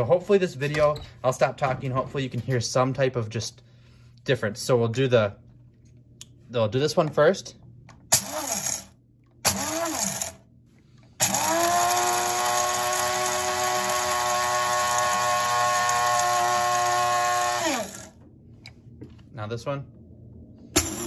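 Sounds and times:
coffee grinder grinding beans: 0:08.1 - 0:08.9, 0:09.5 - 0:10.4, 0:11.2 - 0:18.2.

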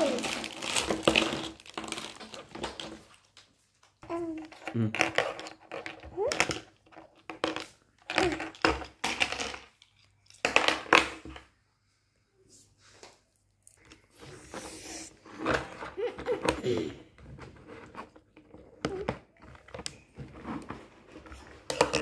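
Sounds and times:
plastic toy pieces clacking: 0:00.0 - 0:03.2, 0:04.4 - 0:11.2, 0:21.6 - 0:22.0.

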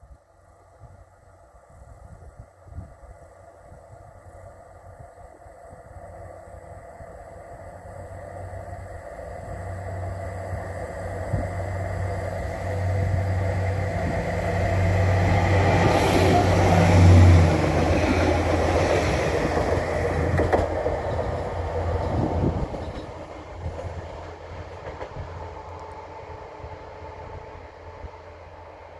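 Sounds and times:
train wheels rumbling on rails: 0:06.7 - 0:28.9
diesel engine drone: 0:07.4 - 0:28.9.

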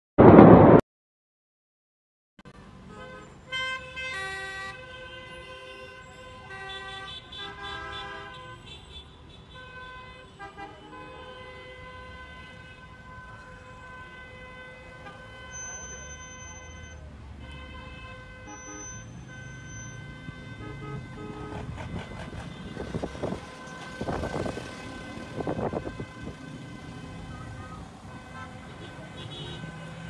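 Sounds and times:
traffic rumble: 0:02.5 - 0:30.0
car horns sounding: 0:02.9 - 0:30.0.

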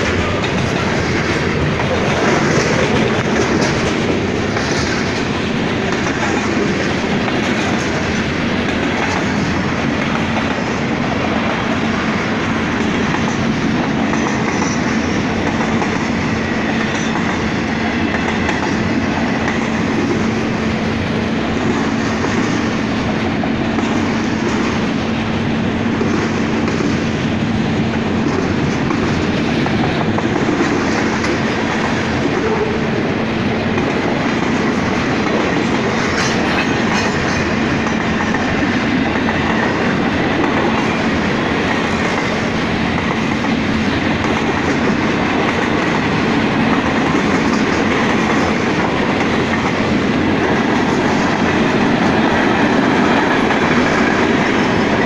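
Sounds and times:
train wheels on rails: 0:00.0 - 0:55.0.

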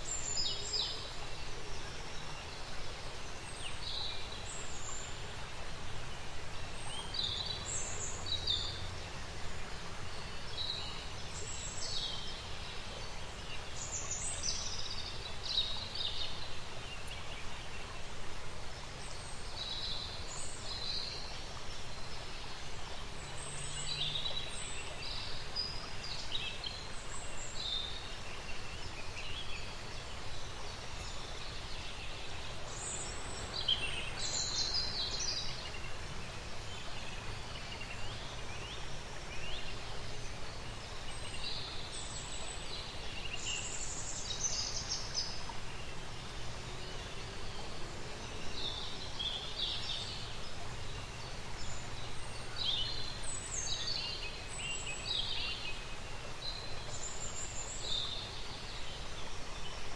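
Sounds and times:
steady background hiss: 0:00.0 - 0:59.9.

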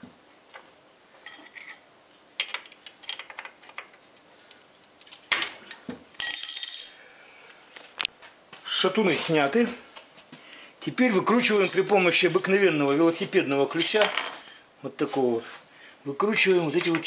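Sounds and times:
metal parts and tools clinking: 0:01.2 - 0:04.0, 0:06.2 - 0:07.0, 0:11.3 - 0:14.4.

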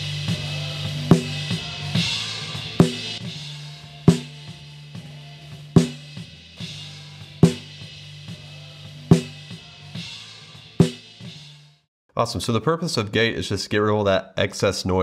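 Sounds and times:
hard snare drum hits: 0:01.0 - 0:03.3, 0:04.1 - 0:04.5, 0:05.8 - 0:06.2, 0:07.4 - 0:07.8, 0:09.1 - 0:09.5, 0:10.8 - 0:11.2.

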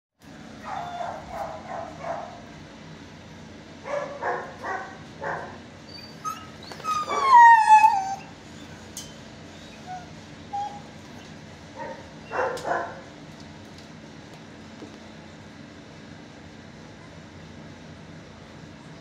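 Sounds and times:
dog whining: 0:00.6 - 0:02.4, 0:03.9 - 0:12.9
dogs barking: 0:00.6 - 0:02.5, 0:03.8 - 0:08.9, 0:11.7 - 0:13.1.

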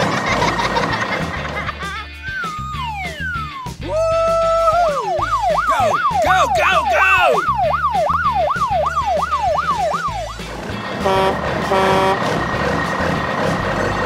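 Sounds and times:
rumbling vehicle: 0:00.0 - 0:01.9, 0:09.8 - 0:14.0
background music: 0:00.0 - 0:14.0
fast wailing siren: 0:04.8 - 0:10.5
short horn honks: 0:11.0 - 0:12.3.

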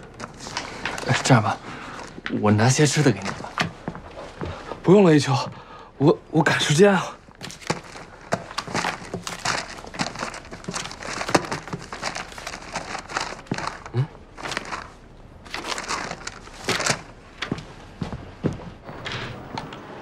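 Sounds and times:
paper rustling: 0:00.0 - 0:03.8, 0:07.3 - 0:18.8.

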